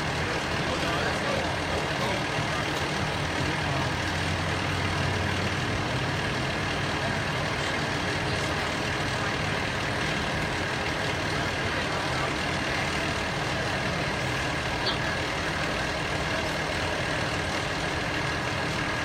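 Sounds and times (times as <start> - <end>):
heavy vehicle engine idling: 0.0 - 19.0.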